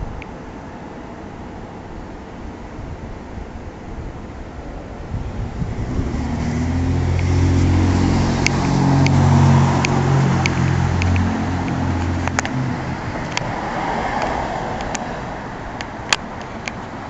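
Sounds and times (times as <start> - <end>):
vehicle engine running: 5.1 - 17.0
sharp light ticks: 8.4 - 9.2, 9.8 - 12.6, 13.2 - 13.6, 14.2 - 15.1, 15.8 - 17.0.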